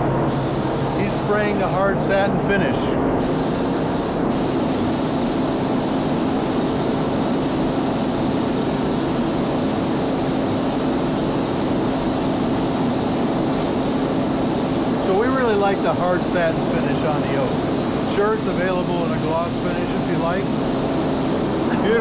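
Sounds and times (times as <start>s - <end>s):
spray gun hissing: 0.3s - 1.9s, 3.2s - 22.0s.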